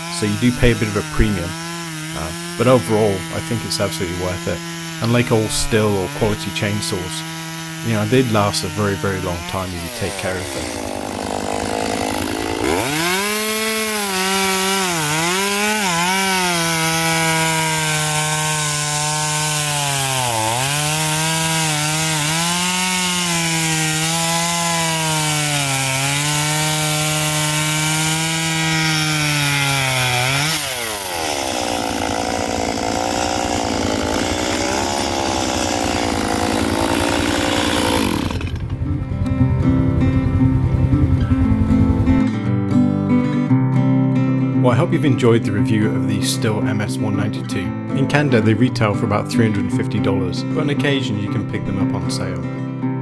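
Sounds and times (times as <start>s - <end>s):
chainsaw cutting through log: 0.0s - 42.3s.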